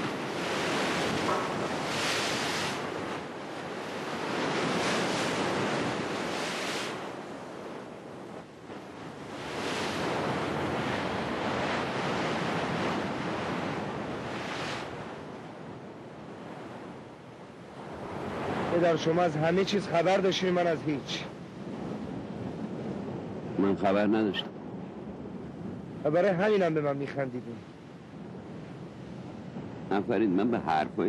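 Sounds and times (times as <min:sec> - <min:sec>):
surf crashing against rocks: 0:00.0 - 0:17.0, 0:17.8 - 0:23.9.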